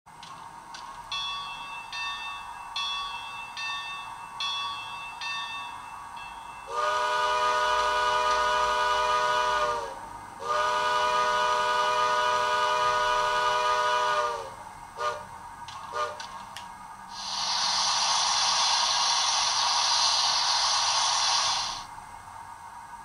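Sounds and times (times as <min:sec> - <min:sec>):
locomotive bell ringing: 0:01.0 - 0:06.9
multi-tone steam whistle blasts: 0:06.6 - 0:15.3, 0:15.9 - 0:16.3, 0:17.1 - 0:21.9.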